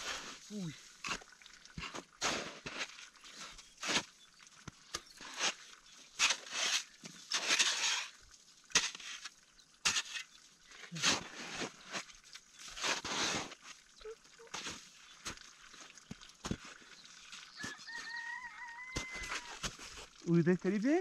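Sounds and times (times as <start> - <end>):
metal spade scraping crusted snow: 1.8 - 4.1, 5.1 - 13.7.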